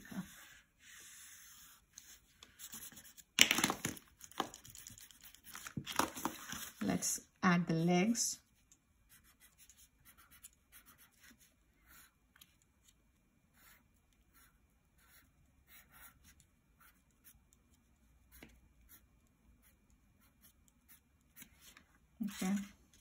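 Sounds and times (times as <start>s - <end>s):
pencil scratching on paper: 0.0s - 3.2s, 9.1s - 12.2s, 13.5s - 17.6s, 18.3s - 21.7s.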